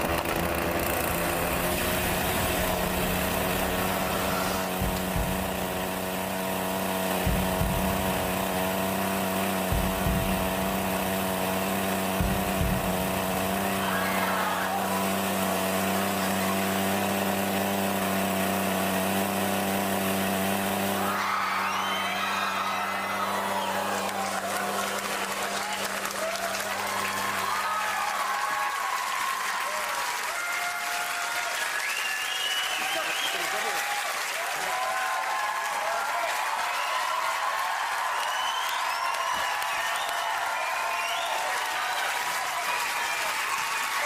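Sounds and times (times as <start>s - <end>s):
chainsaw running: 0.0s - 44.0s.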